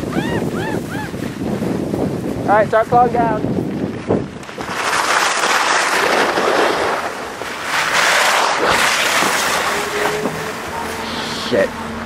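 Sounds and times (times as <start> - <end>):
skis scraping over snow: 3.5 - 11.7.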